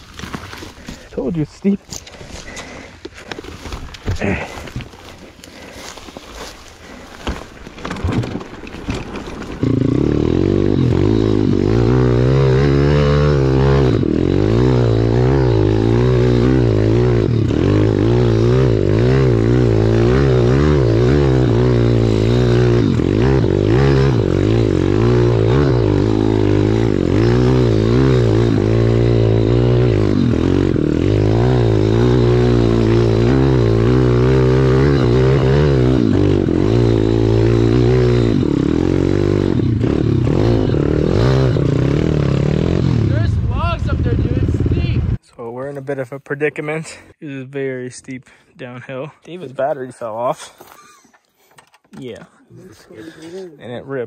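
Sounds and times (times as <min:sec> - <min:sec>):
motorbike engine under throttle: 0:06.8 - 0:45.2.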